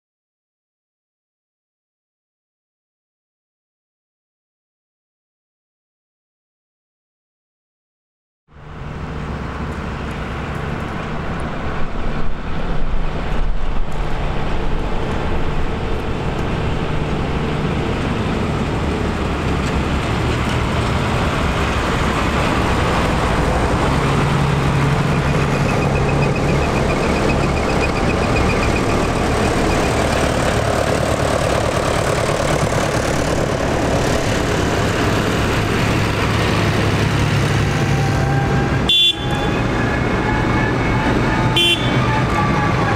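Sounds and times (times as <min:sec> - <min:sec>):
tractor engines running: 0:08.5 - 0:42.9.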